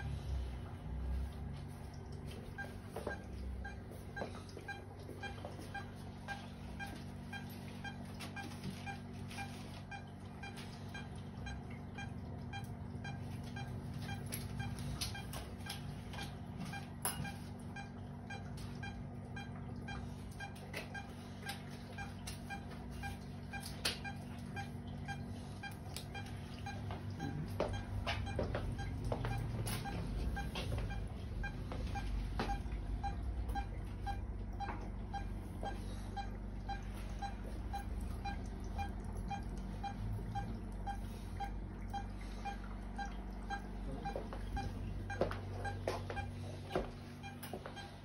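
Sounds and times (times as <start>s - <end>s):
low equipment hum: 0.0s - 48.0s
patient monitor short beeps: 2.5s - 48.0s.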